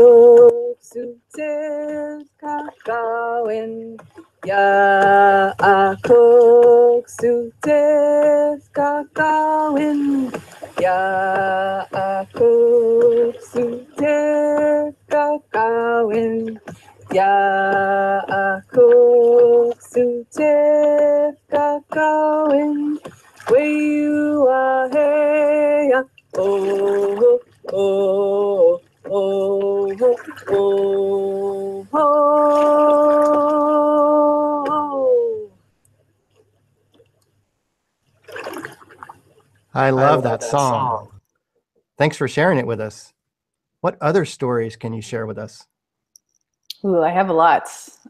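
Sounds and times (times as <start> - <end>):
woman singing: 0.0 - 35.5, 39.8 - 41.1, 46.7 - 48.0.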